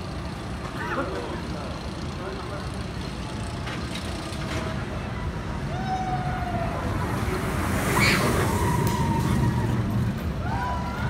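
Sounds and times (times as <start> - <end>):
roller coaster rumbling on track: 0.0 - 11.0
roller coaster whoosh: 5.5 - 11.0.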